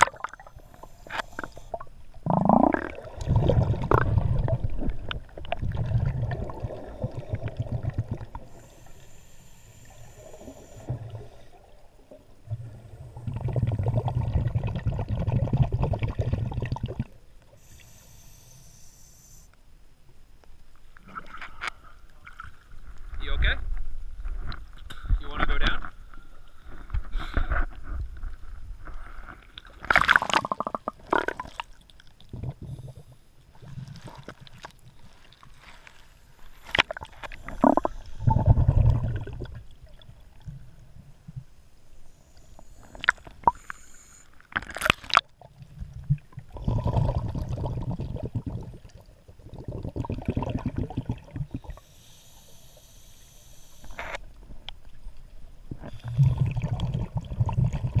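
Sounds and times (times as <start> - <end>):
rumbling gurgling bubbles: 0.0 - 8.7, 10.1 - 17.3, 29.6 - 34.4, 36.8 - 41.5, 44.6 - 51.8, 55.5 - 58.0.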